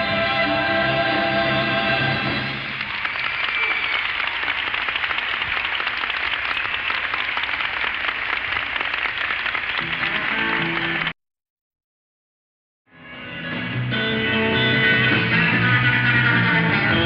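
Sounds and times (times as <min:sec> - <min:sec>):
audience applauding: 0:02.5 - 0:11.2
band playing: 0:09.8 - 0:11.1, 0:13.0 - 0:17.0.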